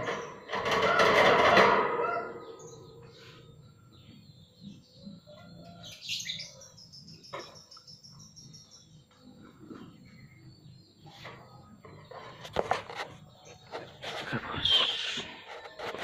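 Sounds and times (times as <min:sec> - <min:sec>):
small birds chirping: 0:02.4 - 0:16.0
high bird trill: 0:13.6 - 0:16.0.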